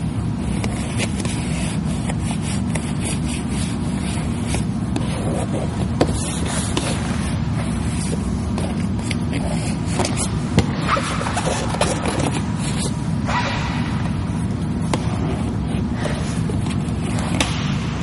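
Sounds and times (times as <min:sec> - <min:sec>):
steady low rumble: 0:00.0 - 0:18.0
squeegee scraping over vinyl film: 0:00.4 - 0:13.5.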